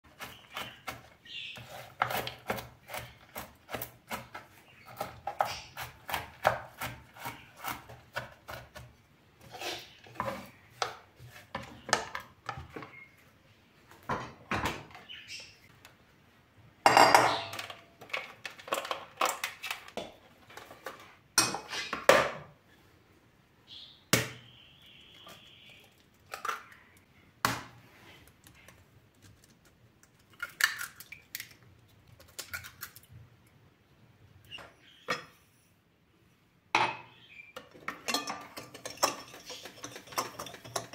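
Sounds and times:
utensils and bowl clattering: 36.8 - 40.9.

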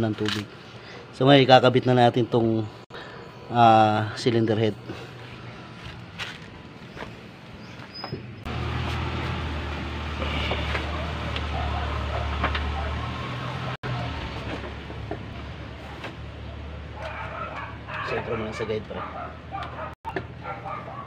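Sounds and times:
low engine rumble: 4.7 - 20.9.

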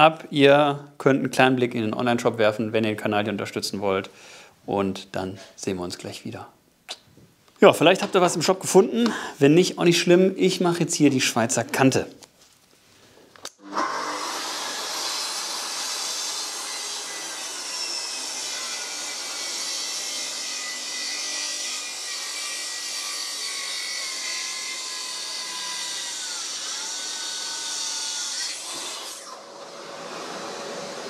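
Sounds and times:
plunge saw cutting wood: 13.5 - 31.0.

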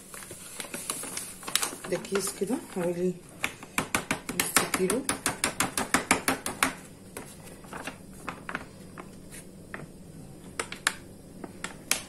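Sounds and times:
plastic bag crinkling: 0.0 - 3.0, 7.4 - 9.4.

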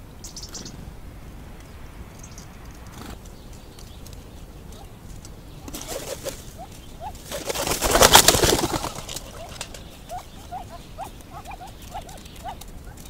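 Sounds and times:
soft rising bird calls: 0.0 - 13.0
wings flapping: 2.6 - 13.0.

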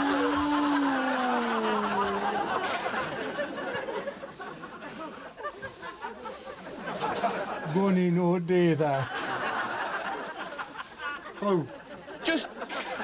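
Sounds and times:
man crying out in fright: 0.0 - 2.5
laughter: 1.4 - 7.8, 9.0 - 13.0.

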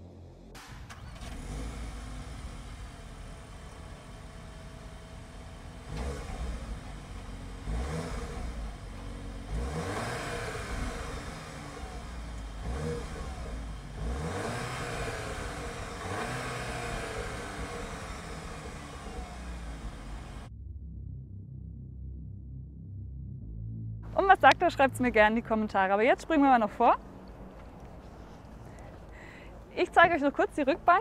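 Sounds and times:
car engine idling and revving: 0.0 - 20.6.

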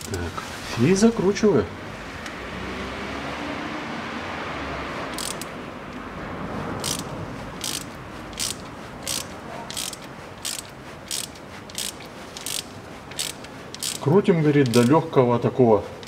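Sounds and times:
ratchet wrench clicking: 5.1 - 5.6, 6.8 - 15.0.

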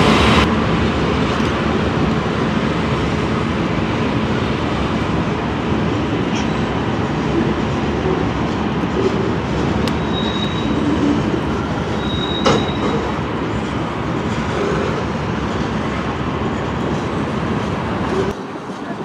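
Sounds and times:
train wheels on rails: 0.0 - 19.0
high wheel squeal: 9.9 - 13.2.

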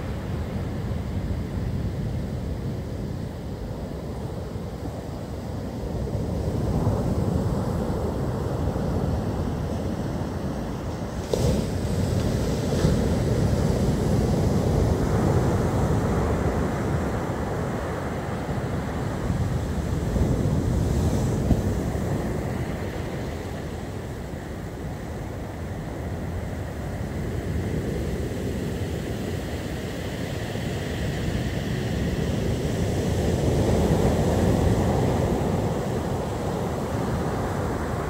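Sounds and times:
surf breaking on beach: 11.0 - 24.8.

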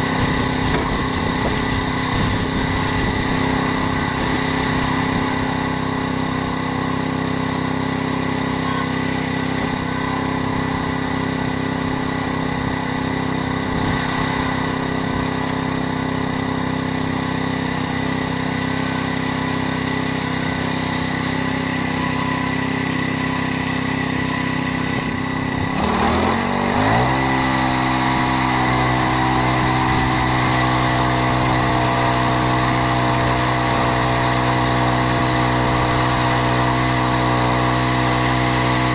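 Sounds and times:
band blade sawing log: 0.0 - 5.7, 24.8 - 38.9
petrol engine running: 0.0 - 38.9.

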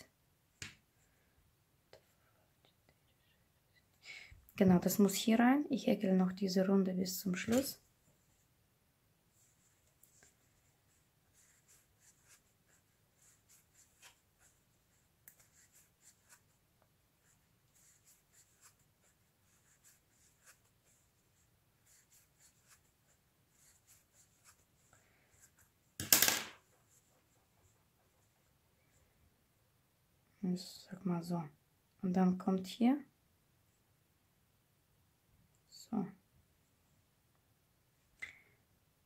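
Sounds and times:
crochet hook scratching yarn: 9.4 - 16.6, 17.2 - 25.8, 26.6 - 28.5.

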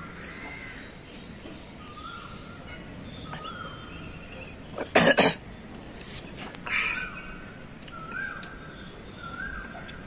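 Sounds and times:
loud harsh caws: 0.0 - 0.9, 6.6 - 7.5
faint bird calls: 0.0 - 4.9, 5.9 - 10.0.

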